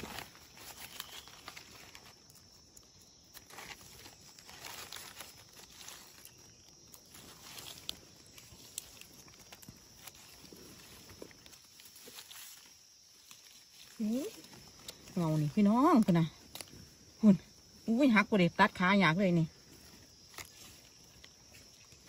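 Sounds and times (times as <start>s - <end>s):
small clicks and crackles: 0.0s - 16.9s, 19.7s - 22.0s
dry leaves rustling: 0.0s - 17.9s, 18.8s - 22.0s.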